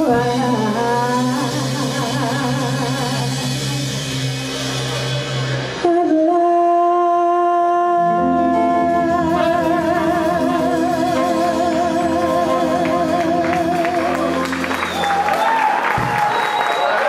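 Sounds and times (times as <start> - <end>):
live band playing: 0.0 - 17.0
singer holding long high note: 5.8 - 15.6.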